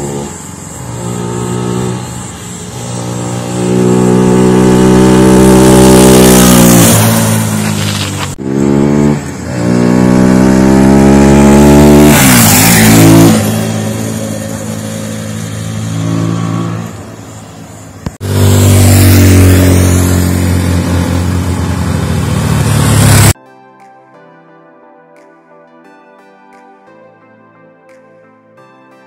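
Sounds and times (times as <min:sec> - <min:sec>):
motorcycle revving past: 0:00.0 - 0:23.4
soft music: 0:23.4 - 0:29.0.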